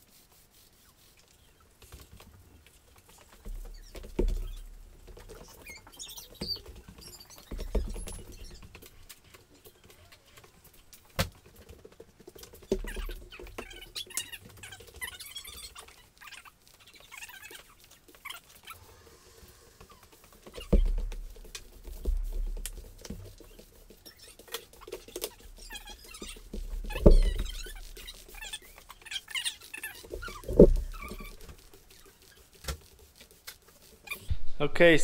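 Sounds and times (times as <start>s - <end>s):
squeaky sticky scraping: 0.4s - 34.3s.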